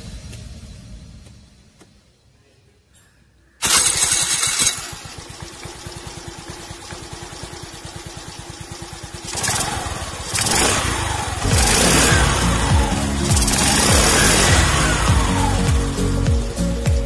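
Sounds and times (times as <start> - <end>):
scooter engine idling and revving: 3.6 - 17.0.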